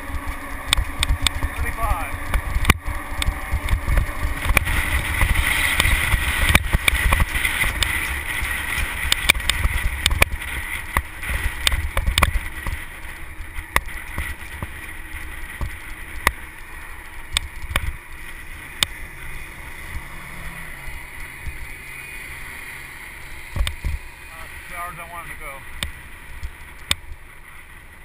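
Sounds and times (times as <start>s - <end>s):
sharp clicks and rattles: 0.0s - 20.0s
wind buffeting microphone: 0.0s - 24.8s
truck road noise: 0.0s - 28.0s.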